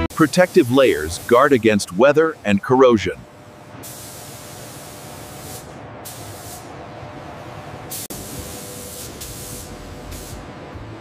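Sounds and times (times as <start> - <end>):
paint spray guns hissing: 0.1 - 2.2, 3.5 - 6.7, 7.9 - 10.5.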